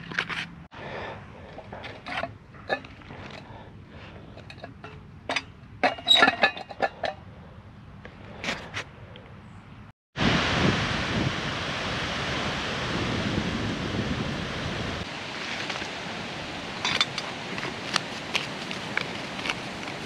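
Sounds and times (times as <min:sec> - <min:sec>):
wind through trees: 0:07.1 - 0:20.0.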